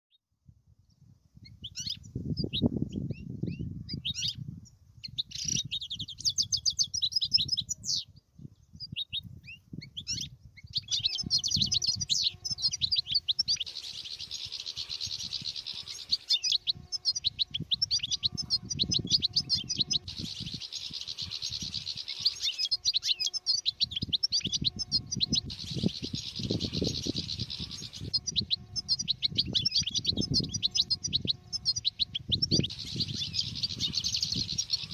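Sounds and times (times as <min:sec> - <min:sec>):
goldfinches twittering: 0:10.1 - 0:34.9.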